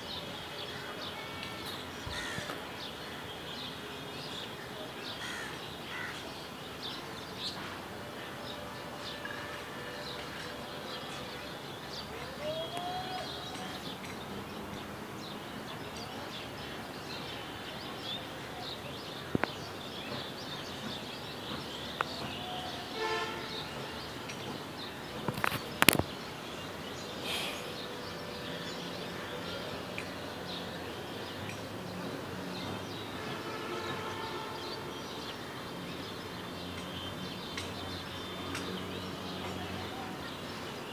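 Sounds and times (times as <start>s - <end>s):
steady background noise: 0.0s - 40.9s.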